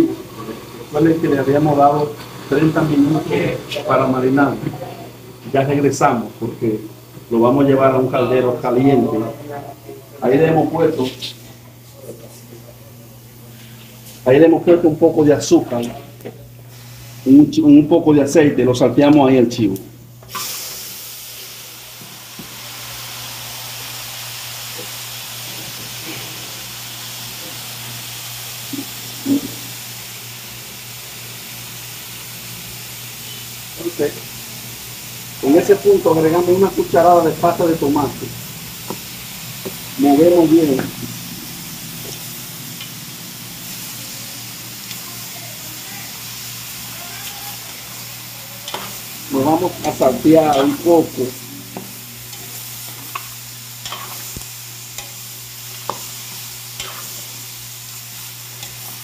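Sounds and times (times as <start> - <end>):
meat sizzling in hot oil: 0.0 - 9.1, 16.7 - 17.6, 20.3 - 59.0
metal spoon stirring: 48.6 - 50.9, 51.8 - 54.4, 55.0 - 57.3.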